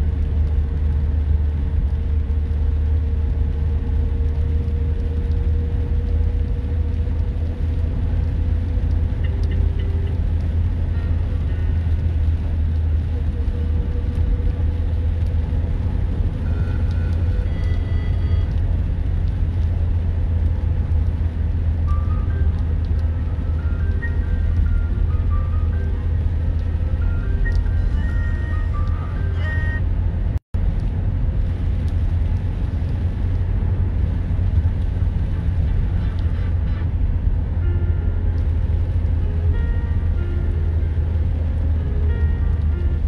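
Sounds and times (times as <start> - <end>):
engine and road rumble: 0.0 - 43.0.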